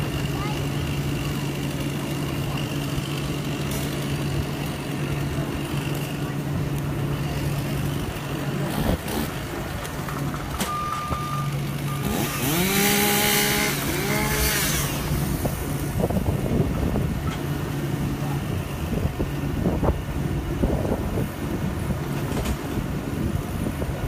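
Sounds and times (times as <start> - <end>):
chainsaw revving: 0.0 - 6.4, 7.0 - 9.7, 11.7 - 15.9
truck engine running: 0.0 - 24.0
short high beep: 10.6 - 12.3.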